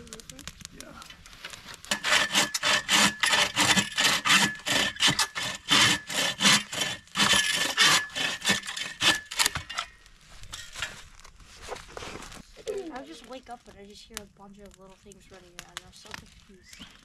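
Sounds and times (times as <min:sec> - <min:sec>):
hand saw cutting wood: 0:01.9 - 0:09.8.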